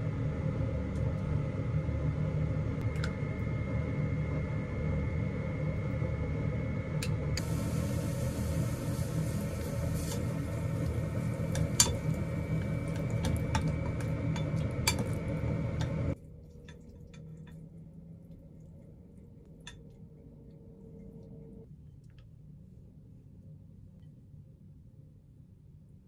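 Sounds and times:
gas burner flame rumble: 0:00.0 - 0:16.7.

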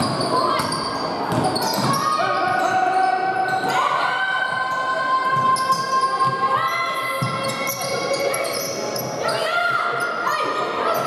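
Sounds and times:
shoes squeaking on court floor: 0:00.0 - 0:03.7, 0:07.2 - 0:10.2.

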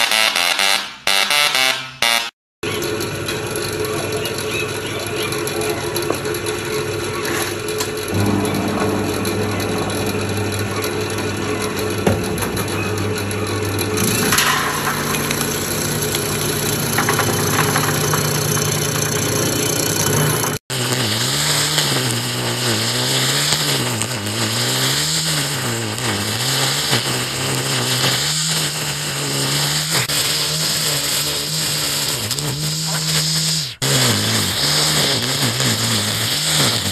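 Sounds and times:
brush cutter engine: 0:02.7 - 0:10.0, 0:15.0 - 0:36.9
vegetable slicing machine humming: 0:02.7 - 0:36.9.

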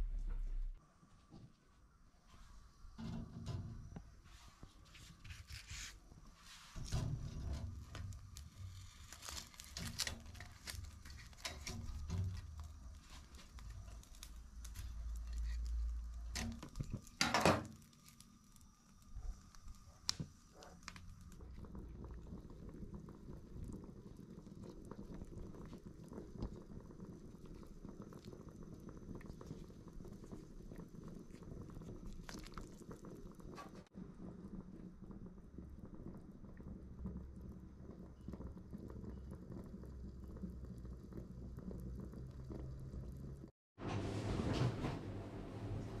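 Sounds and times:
gas burner rumble: 0:02.3 - 0:46.0
pot of broth boiling: 0:02.6 - 0:43.5
metal tongs scraping grill rack: 0:06.7 - 0:12.7.

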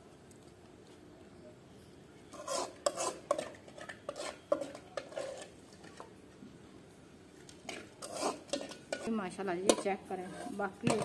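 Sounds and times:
metal spoon scraping steel pot: 0:02.3 - 0:06.1, 0:07.6 - 0:11.0.

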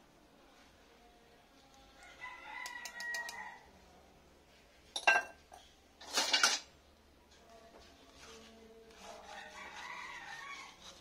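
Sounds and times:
rooster crowing: 0:02.0 - 0:03.7, 0:09.2 - 0:10.8.

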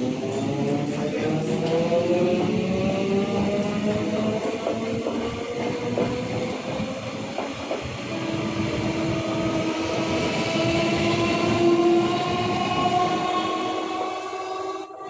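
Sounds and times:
train wheels clattering on rails: 0:03.3 - 0:14.3.

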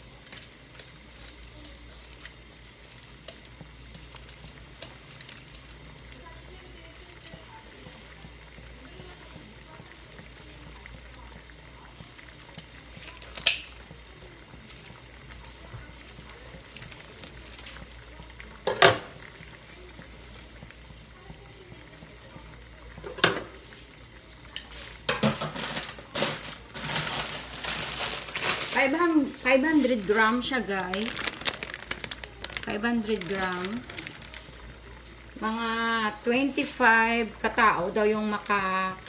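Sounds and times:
water boiling: 0:00.0 - 0:39.0
scissors snapping dried noodles: 0:13.2 - 0:13.7.

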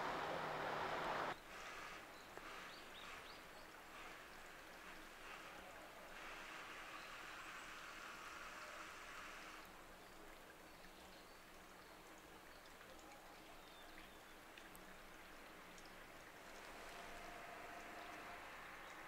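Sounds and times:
faint hiss: 0:00.0 - 0:19.0
faint ticks: 0:10.2 - 0:19.0.

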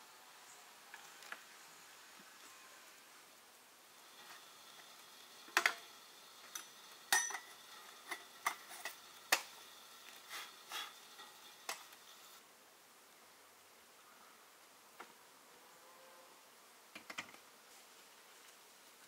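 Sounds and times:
metal and glass clinks: 0:06.6 - 0:07.5.

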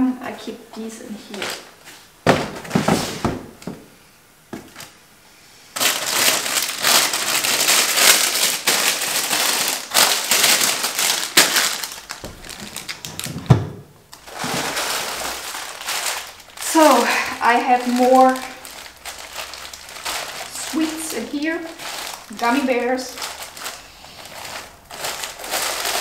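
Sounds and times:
plastic packaging crinkling: 0:01.2 - 0:01.8, 0:05.8 - 0:26.0
small items clattering: 0:05.8 - 0:26.0.

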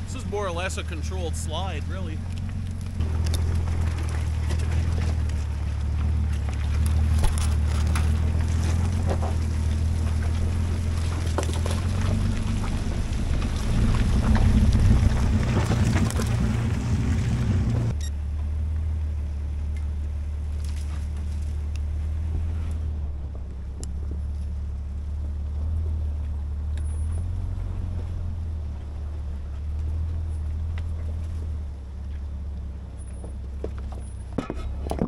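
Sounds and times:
truck engine running: 0:00.0 - 0:35.0.

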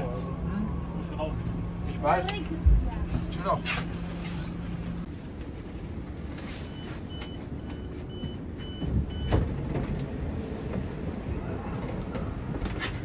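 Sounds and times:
low train rumble: 0:00.0 - 0:13.0.

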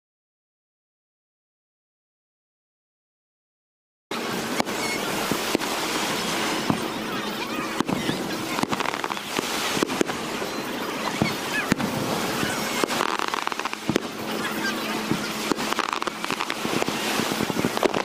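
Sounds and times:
fireworks bangs: 0:04.1 - 0:18.0
steady rushing background: 0:04.1 - 0:18.0.

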